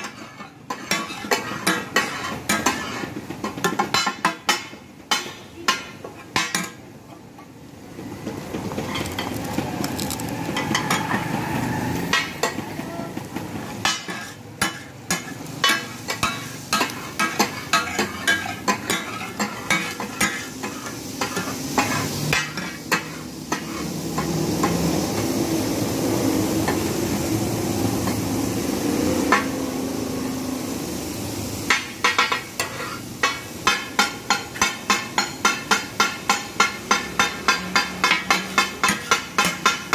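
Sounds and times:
spatulas clacking on steel griddle: 0.0 - 7.6, 12.1 - 12.6, 13.8 - 24.8, 31.7 - 39.9
meat sizzling: 8.9 - 11.1, 13.9 - 39.9.

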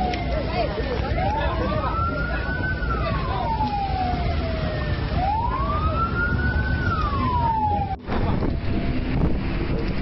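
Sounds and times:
fire engine siren wailing: 0.0 - 9.8
low rumbling noise: 2.6 - 10.0.

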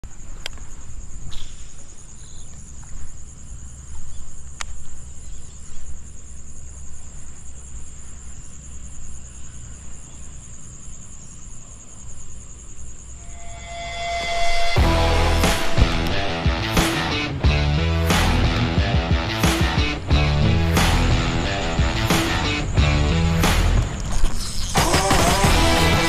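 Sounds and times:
insect chorus chirring: 0.0 - 26.0
low rumble: 13.2 - 18.9, 20.0 - 24.3
sharp clicks: 23.4 - 25.5.

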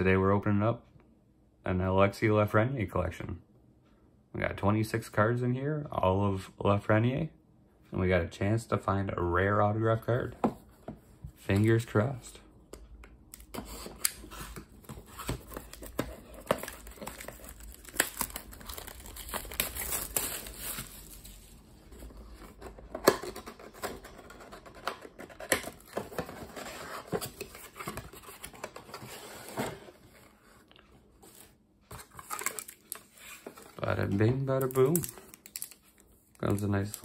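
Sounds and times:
plastic shrink-wrap tearing: 16.6 - 21.3.

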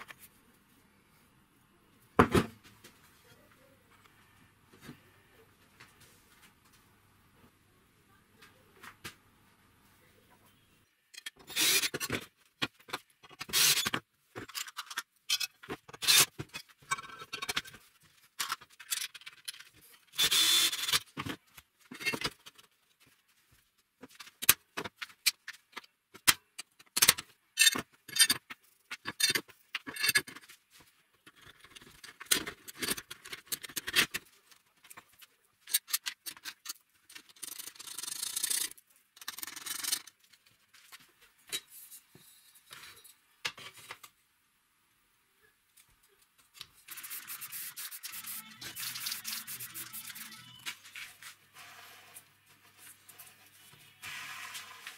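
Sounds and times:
metal parts clinking and scraping: 13.3 - 17.8, 18.4 - 21.0, 26.9 - 30.5
cordless drill running: 20.2 - 20.7.

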